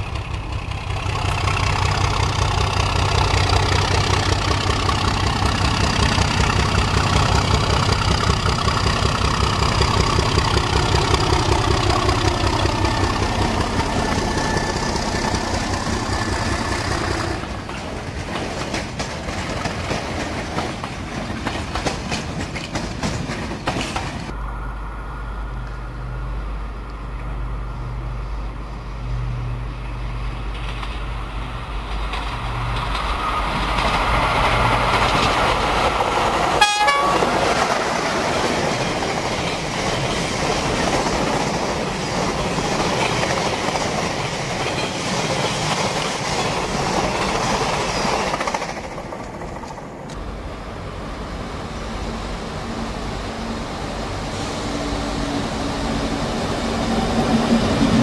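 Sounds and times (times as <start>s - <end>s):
electric locomotives humming: 0.0s - 19.0s, 19.8s - 58.0s
wagons clattering over rail joints: 0.0s - 24.4s, 31.8s - 50.2s
diesel locomotive engine working: 0.0s - 58.0s.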